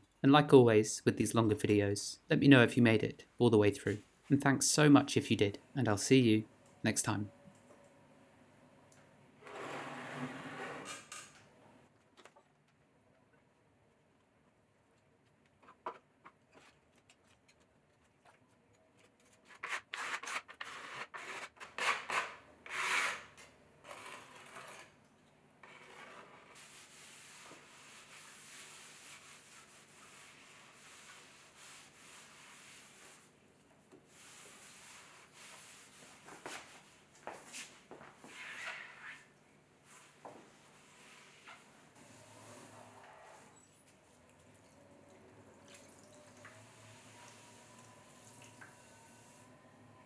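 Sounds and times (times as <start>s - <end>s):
clay scraping strokes: 15.0s - 25.0s, 25.6s - 33.4s, 34.0s - 36.9s
damp sponge rubbing board: 25.8s - 33.3s.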